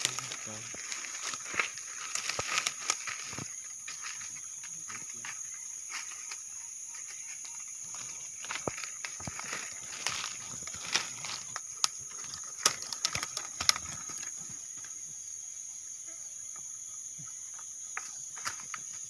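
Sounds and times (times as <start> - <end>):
twigs snapping underfoot: 0.0 - 4.2, 8.4 - 14.4
insects droning: 0.0 - 19.0.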